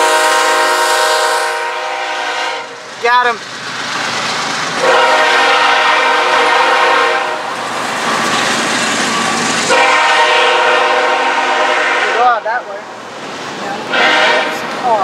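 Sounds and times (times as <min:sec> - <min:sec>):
locomotive horn blasts: 0:00.0 - 0:02.8, 0:04.8 - 0:07.5, 0:09.7 - 0:12.4, 0:13.9 - 0:14.6
railcars rolling on rails: 0:00.0 - 0:15.0.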